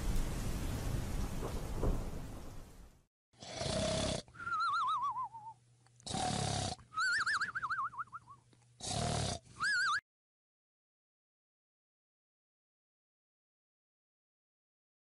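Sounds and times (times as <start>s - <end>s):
cartoon snoring: 3.4s - 4.5s, 6.0s - 6.8s, 8.8s - 9.5s
high warbling whistle: 4.4s - 5.6s, 7.0s - 8.4s.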